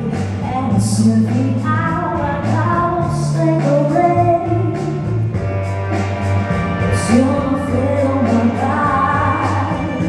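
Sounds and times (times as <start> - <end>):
loud amplified pop song: 0.0 - 10.0
person singing: 6.9 - 10.0.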